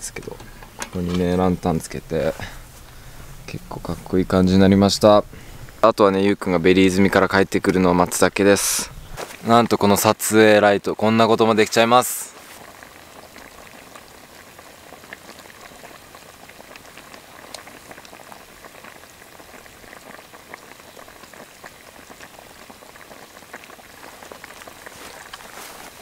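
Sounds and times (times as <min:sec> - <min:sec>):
curry simmering in a wok: 0:12.4 - 0:26.0.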